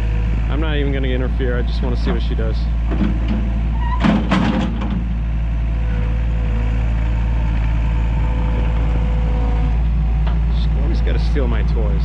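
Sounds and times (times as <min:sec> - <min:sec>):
knocks and rattles: 0:02.9 - 0:05.3.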